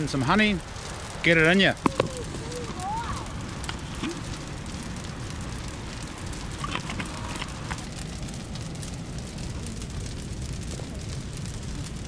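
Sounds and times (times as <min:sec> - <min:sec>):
background hiss: 0:00.0 - 0:12.0.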